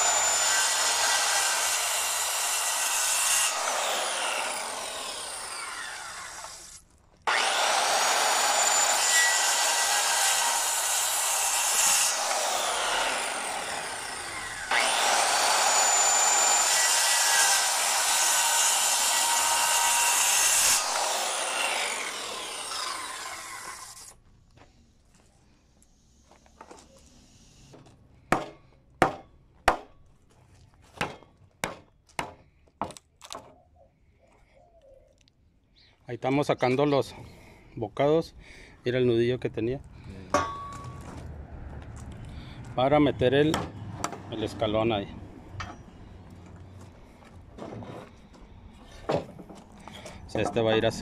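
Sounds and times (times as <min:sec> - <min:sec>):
circular saw cutting wood: 0:00.0 - 0:24.2
saw blade winding down: 0:00.0 - 0:24.2.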